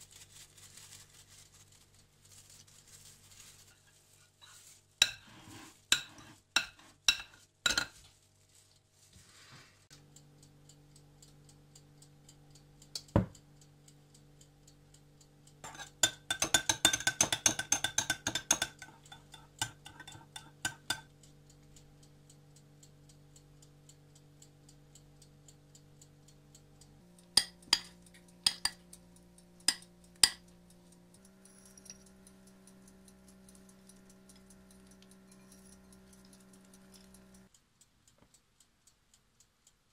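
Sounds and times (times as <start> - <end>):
metal spoon clinking glass bowl: 5.9 - 8.0, 15.6 - 21.1, 27.4 - 28.8, 29.7 - 30.4, 31.4 - 32.2, 34.8 - 37.3.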